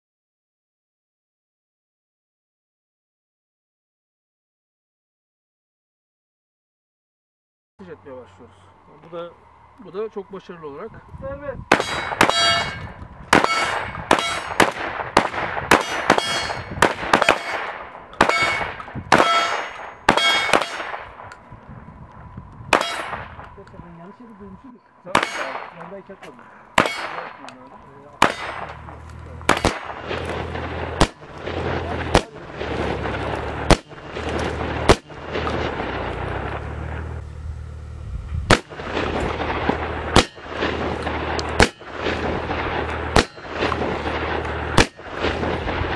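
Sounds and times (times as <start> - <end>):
low steady rumble: 7.8 - 45.9
gunshots: 11.7 - 21.3, 22.7 - 23.5, 25.1 - 26.0, 26.7 - 37.1, 38.5 - 45.9.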